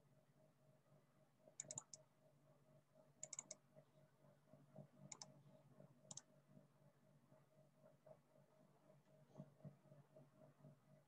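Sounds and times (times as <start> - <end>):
faint steady hum: 0.0 - 11.0
computer mouse clicking: 1.6 - 2.0, 3.2 - 3.6, 5.1 - 5.4, 6.1 - 6.3.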